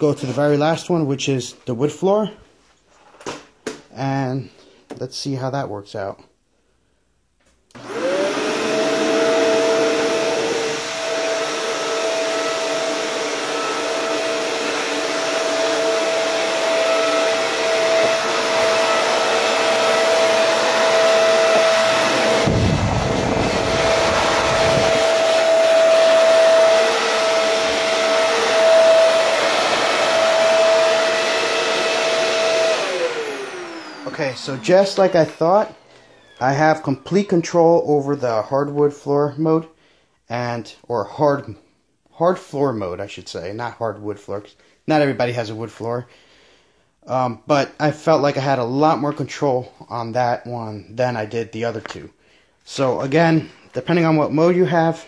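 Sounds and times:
vacuum cleaner running: 0:07.7 - 0:39.0, 0:52.7 - 0:55.0
low rumble: 0:22.4 - 0:25.1.

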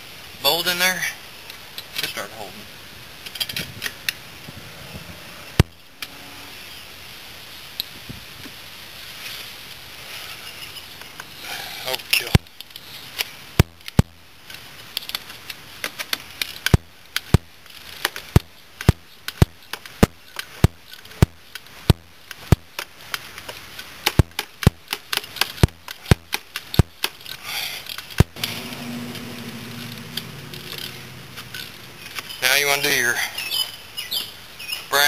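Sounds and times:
low hum: 0:04.4 - 0:06.9, 0:28.2 - 0:32.4.

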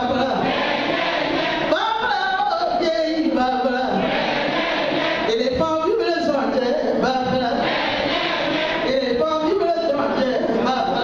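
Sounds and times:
voices singing through pa system: 0:00.0 - 0:11.0.

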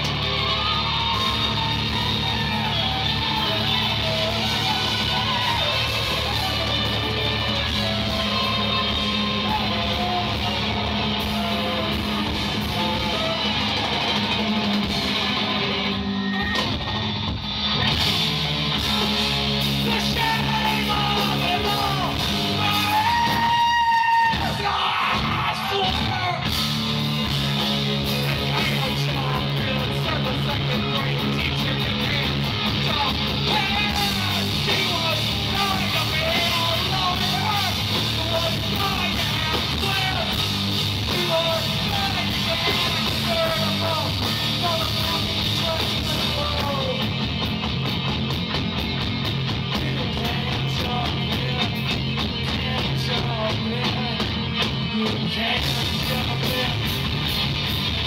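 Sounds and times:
shouted half-sung vocals: 0:00.0 - 0:14.8, 0:19.6 - 0:26.6, 0:27.8 - 0:47.2
live rock band playing: 0:00.0 - 0:58.0.

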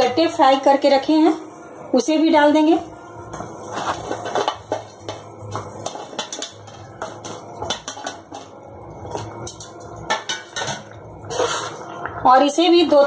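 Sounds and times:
metal utensils clinking on pan: 0:03.8 - 0:11.0.

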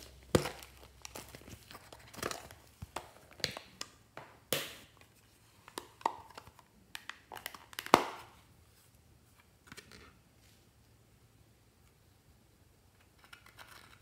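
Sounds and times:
plastic clicks and crinkles: 0:00.0 - 0:04.3, 0:05.0 - 0:08.4, 0:13.0 - 0:14.0.

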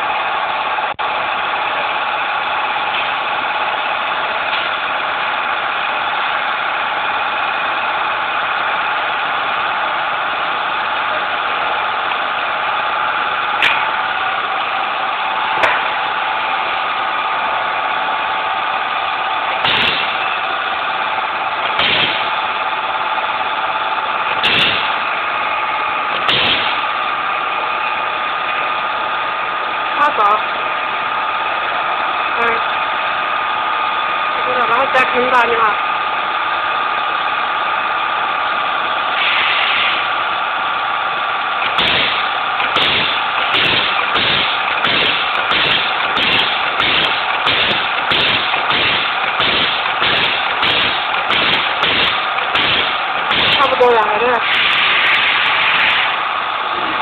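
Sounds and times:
machine mechanical hum: 0:00.0 - 0:57.0
machine press strokes: 0:41.6 - 0:56.2.

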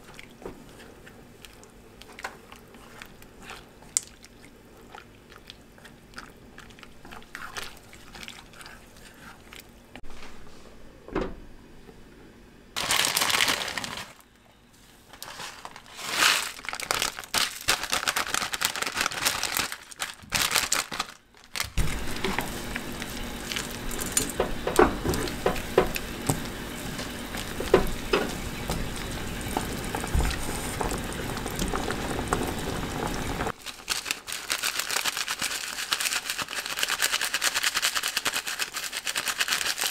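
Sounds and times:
plastic packet crinkling: 0:12.8 - 0:14.2, 0:15.2 - 0:24.4, 0:33.0 - 0:39.9
broth bubbling and popping: 0:21.8 - 0:33.5.

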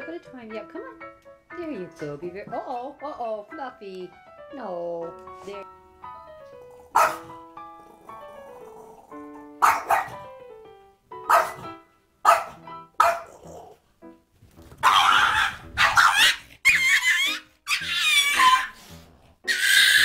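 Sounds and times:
background music: 0:00.0 - 0:20.0
small dog barking: 0:06.9 - 0:07.2, 0:09.6 - 0:10.2, 0:11.3 - 0:13.4, 0:14.8 - 0:16.4.

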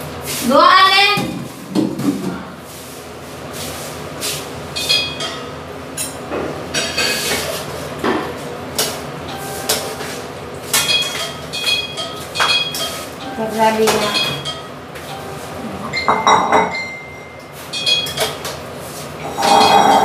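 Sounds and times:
metal spatula scraping frying pan: 0:19.3 - 0:20.0.

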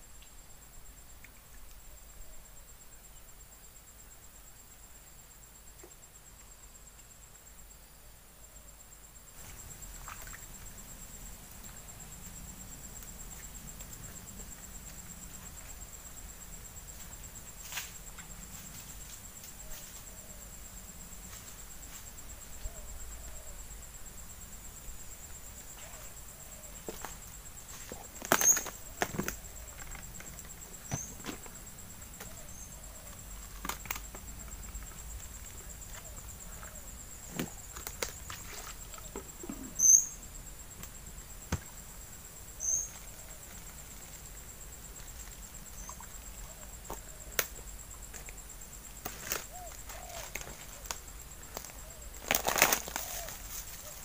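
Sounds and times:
high fast-pulsing insect chirr: 0:09.0 - 0:54.0
faint chirps: 0:27.6 - 0:31.3, 0:38.4 - 0:40.4, 0:42.6 - 0:43.6, 0:45.6 - 0:47.4.

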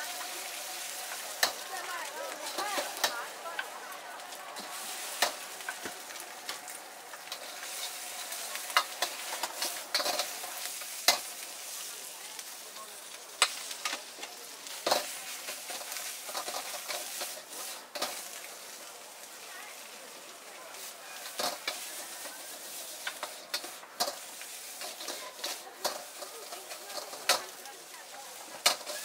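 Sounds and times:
metal ladle scraping wok: 0:00.0 - 0:03.6, 0:04.2 - 0:11.5, 0:14.7 - 0:18.4, 0:20.8 - 0:27.6, 0:28.6 - 0:29.0
food sizzling in a wok: 0:00.0 - 0:29.0
ladle clanking on wok: 0:07.2 - 0:11.4, 0:23.0 - 0:27.6, 0:28.6 - 0:29.0.

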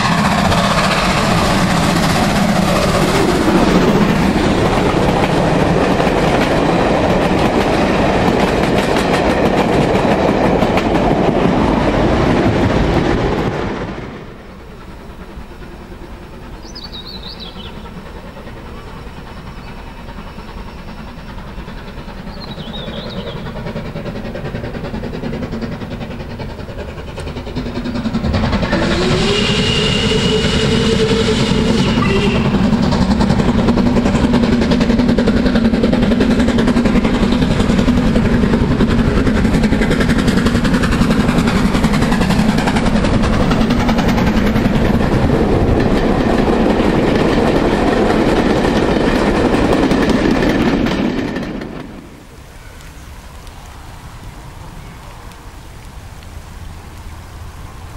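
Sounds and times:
steam locomotive rumbling past: 0:00.0 - 0:57.9
steam whistle: 0:28.6 - 0:32.9.

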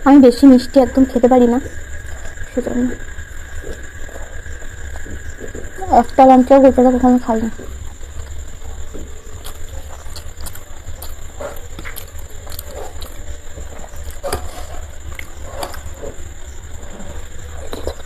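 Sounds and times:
steady low hum: 0:00.0 - 0:18.0
chewing and mouth smacks: 0:08.2 - 0:16.2, 0:17.5 - 0:18.0.

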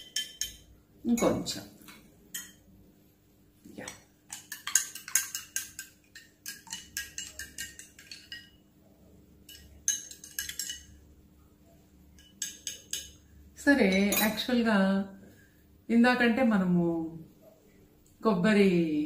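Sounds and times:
teaspoon clinking against glass: 0:00.0 - 0:01.4, 0:02.3 - 0:02.6, 0:04.3 - 0:08.6, 0:09.5 - 0:11.0, 0:12.2 - 0:13.2, 0:13.9 - 0:14.4.

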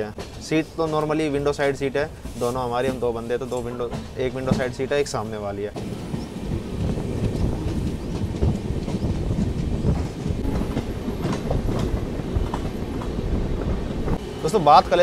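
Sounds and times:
train wheels rumbling on rails: 0:00.0 - 0:15.0
wheels clacking over track: 0:05.7 - 0:15.0.

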